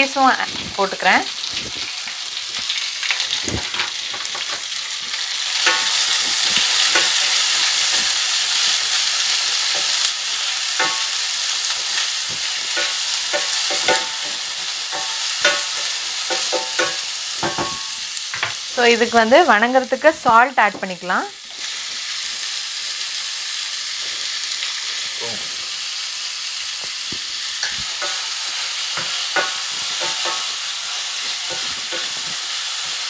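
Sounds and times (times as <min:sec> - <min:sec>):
onions sizzling in hot oil: 0:00.0 - 0:33.0
utensil scraping and tapping pan: 0:05.6 - 0:10.1, 0:10.7 - 0:11.2, 0:11.9 - 0:18.6, 0:27.6 - 0:32.5.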